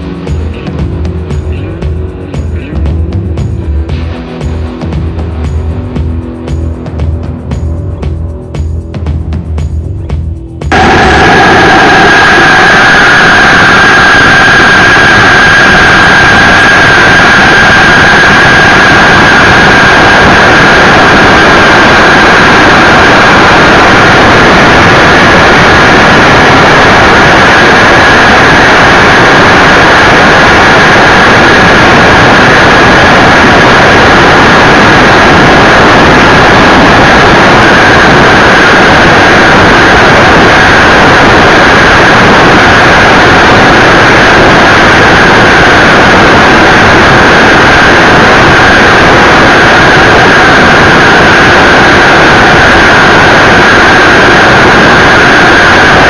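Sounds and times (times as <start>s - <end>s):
model jet turbine running: 10.7s - 56.0s.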